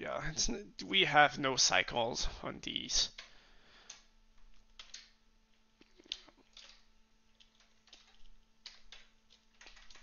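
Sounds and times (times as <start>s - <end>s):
keyboard keystrokes: 4.8s - 5.1s, 7.4s - 10.0s.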